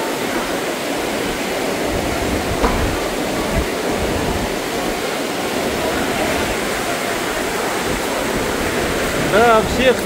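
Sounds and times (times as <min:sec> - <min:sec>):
heavy rain pouring: 0:00.0 - 0:10.0
low thumps: 0:02.2 - 0:04.7.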